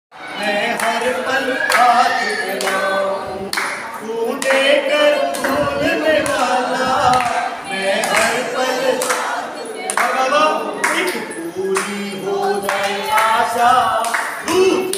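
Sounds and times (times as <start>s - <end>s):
group singing devotional song: 0.2s - 14.9s
hand claps: 3.5s - 6.5s, 7.1s - 14.9s.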